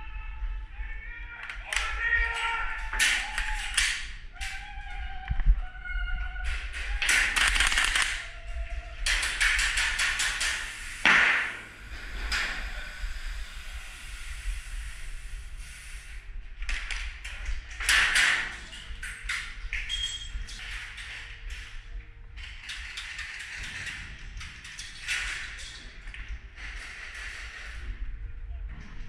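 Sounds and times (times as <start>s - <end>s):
airsoft guns firing bursts: 7.1s - 8.2s
steady low hum: 8.0s - 17.9s.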